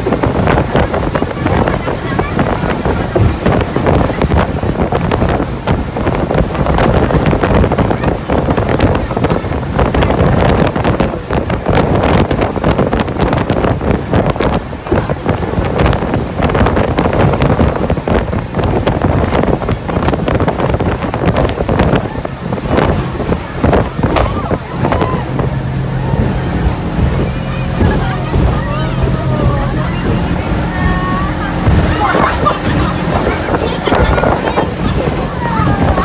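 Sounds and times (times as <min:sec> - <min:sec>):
boat engine: 0:00.0 - 0:36.0
water rushing past hull: 0:00.0 - 0:36.0
wind buffeting microphone: 0:00.0 - 0:36.0.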